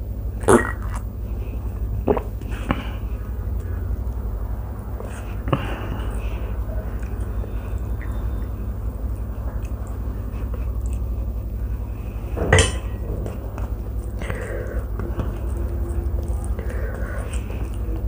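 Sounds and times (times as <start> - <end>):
steady low hum: 0.0 - 18.0
metal bowl clinking down: 12.4 - 13.1.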